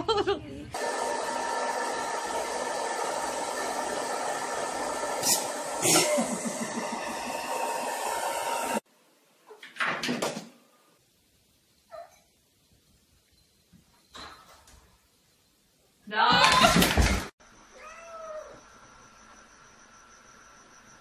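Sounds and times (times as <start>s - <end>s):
hair dryer running: 0.8s - 8.8s.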